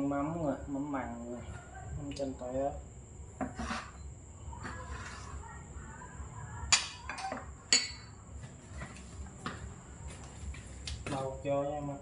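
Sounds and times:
ceramic bowls clinking: 0:06.7 - 0:08.2.

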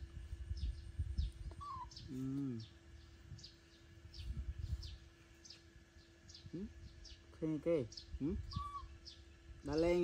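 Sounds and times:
bird chirping: 0:00.5 - 0:10.0
man humming: 0:01.9 - 0:02.8, 0:06.4 - 0:06.9.

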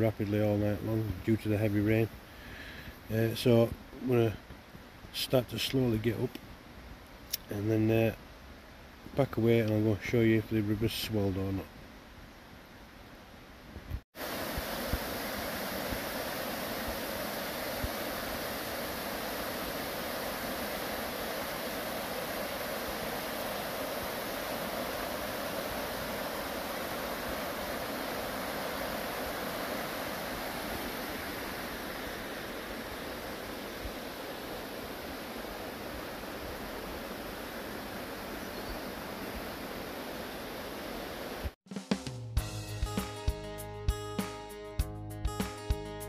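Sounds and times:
river rushing: 0:14.2 - 0:41.6.

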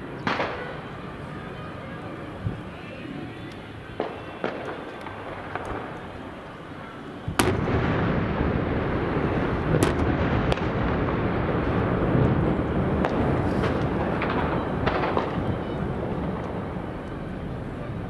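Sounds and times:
heavy rumble of blasts: 0:00.0 - 0:18.0
sharp explosive cracks: 0:07.3 - 0:16.8
loud dynamite blast: 0:07.3 - 0:16.9.

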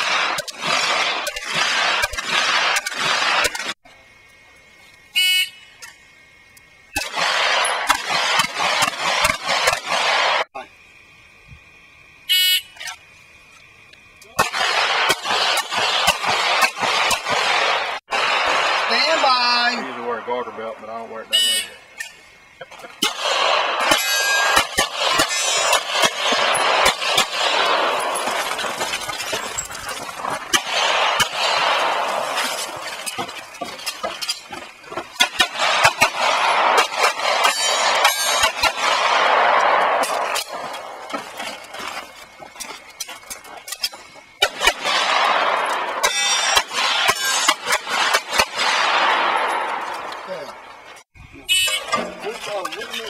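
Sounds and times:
rapid pistol shots: 0:00.0 - 0:03.8, 0:06.9 - 0:10.5, 0:14.4 - 0:20.8, 0:22.9 - 0:41.9, 0:44.4 - 0:50.9.

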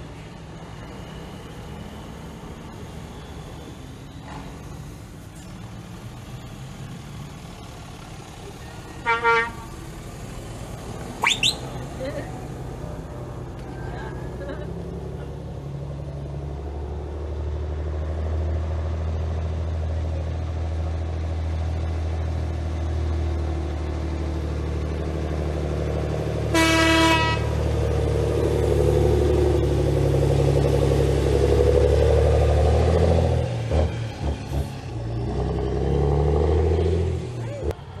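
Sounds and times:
truck diesel engine: 0:00.0 - 0:38.0
truck horn blast: 0:09.0 - 0:09.8, 0:26.5 - 0:27.7.

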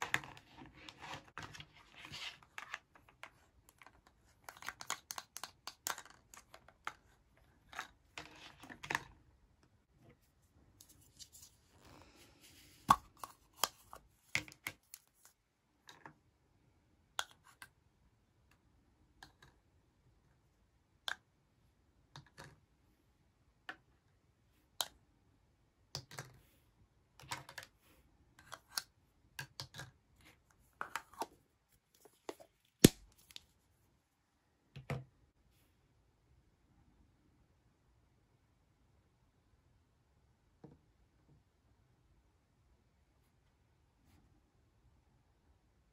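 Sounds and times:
plastic toy cups clicking together: 0:03.2 - 0:07.0.

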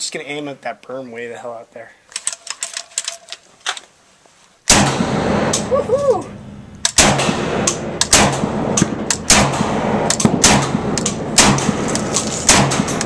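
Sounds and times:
shotgun firing rapidly: 0:04.7 - 0:05.7, 0:06.9 - 0:13.0.

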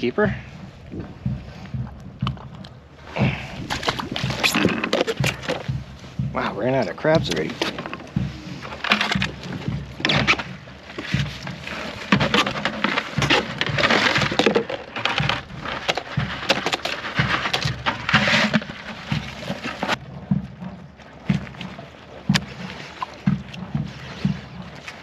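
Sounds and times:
soft knocks: 0:00.8 - 0:24.8
crab shells scraping plastic bucket: 0:08.6 - 0:20.0.

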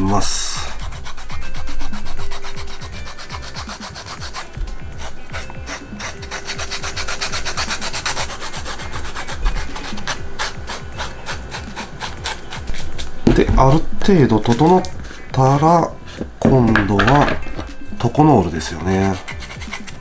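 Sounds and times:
sanding stick rasping on leather: 0:00.5 - 0:13.8, 0:18.2 - 0:20.0.

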